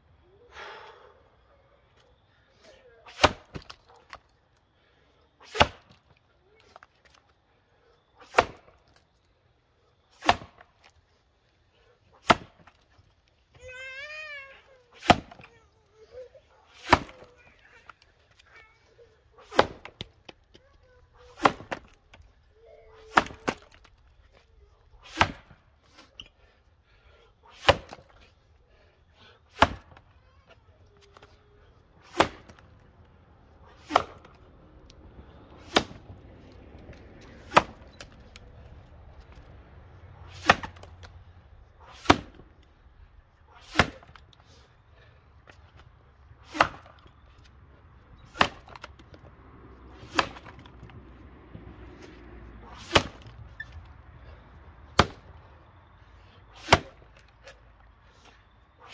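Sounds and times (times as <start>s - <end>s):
axe chopping log: 3.1s - 4.2s, 5.4s - 6.0s, 8.2s - 9.0s, 10.1s - 10.7s, 12.2s - 12.8s, 15.0s - 15.5s, 16.7s - 17.4s, 19.4s - 20.6s, 21.2s - 22.2s, 23.0s - 24.0s, 25.0s - 25.6s, 27.5s - 28.1s, 29.5s - 30.0s, 32.0s - 32.8s, 33.7s - 35.0s, 35.6s - 36.1s, 36.8s - 38.5s, 40.3s - 41.2s, 41.8s - 42.5s, 43.6s - 44.3s, 46.4s - 47.0s, 48.2s - 49.2s, 49.9s - 51.0s, 51.6s - 53.4s, 54.9s - 55.4s, 56.6s - 57.6s.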